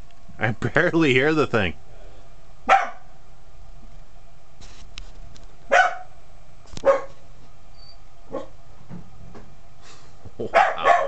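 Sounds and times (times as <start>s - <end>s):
dog barking: 2.6s - 3.1s, 5.7s - 6.2s, 6.8s - 7.2s, 8.3s - 8.6s, 10.5s - 11.0s.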